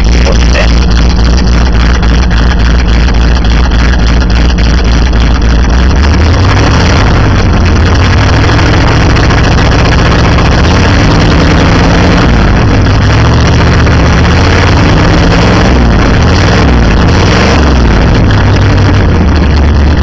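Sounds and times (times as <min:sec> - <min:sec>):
pickup truck engine idling loud: 0:00.0 - 0:20.0.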